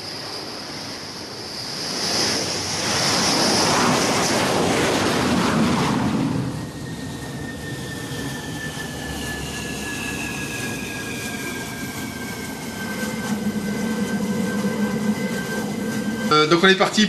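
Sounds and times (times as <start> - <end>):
jet engine whine: 0.0 - 17.0
low rumble: 12.6 - 17.0.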